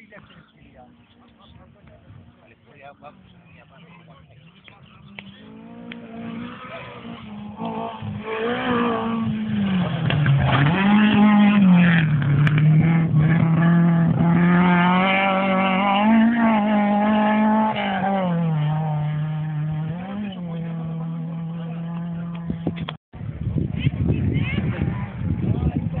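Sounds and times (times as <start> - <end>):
rally car engine running hard: 3.2 - 22.9.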